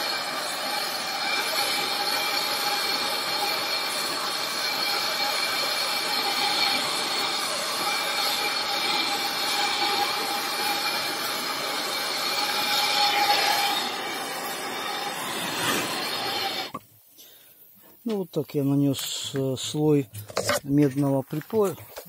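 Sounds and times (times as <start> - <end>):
gas torch flame hissing: 0.0 - 16.8.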